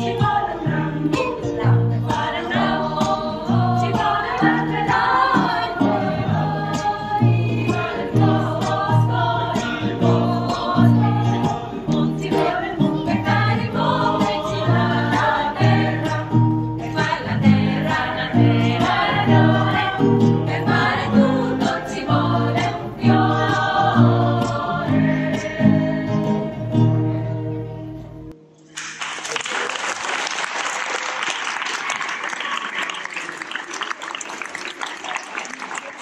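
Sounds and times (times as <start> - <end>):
women's choir singing: 0.0 - 27.8
classical guitar: 0.0 - 28.6
audience applauding: 28.7 - 36.0.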